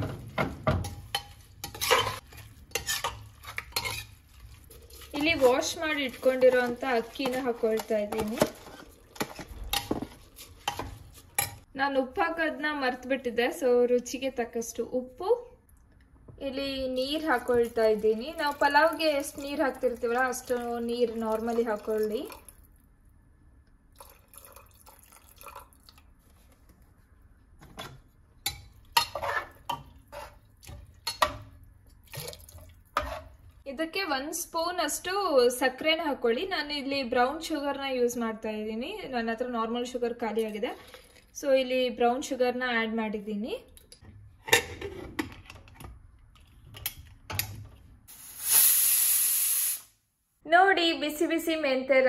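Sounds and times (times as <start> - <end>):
metal spoon clinking and scraping: 0.8 - 11.6.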